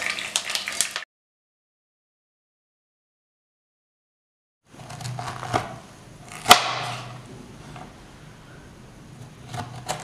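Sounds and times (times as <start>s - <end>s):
knife cutting cauliflower: 4.8s - 7.2s, 9.2s - 10.0s.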